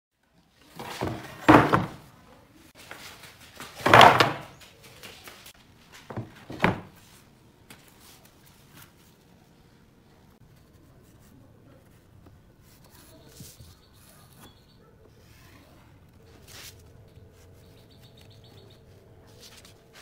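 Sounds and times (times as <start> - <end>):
board scraping on workbench: 0.7 - 2.0
board knocking on wooden workbench: 0.9 - 2.0.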